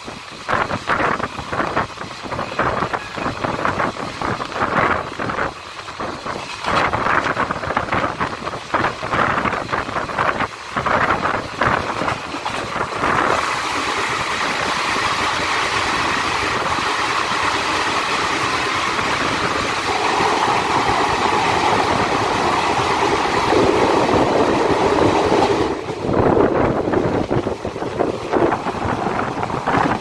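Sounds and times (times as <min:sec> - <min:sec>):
train rumbling in tunnel: 0:00.0 - 0:30.0.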